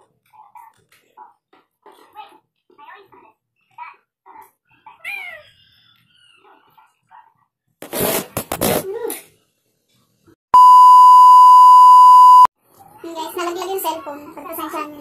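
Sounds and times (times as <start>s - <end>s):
steady test-tone beep: 10.6s - 12.5s.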